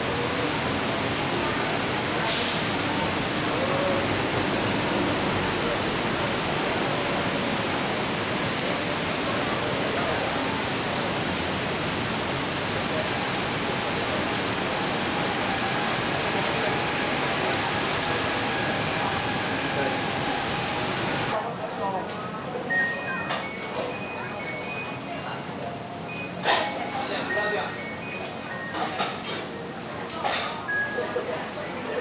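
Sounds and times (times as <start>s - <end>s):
heavy rain on street: 0.0s - 21.4s.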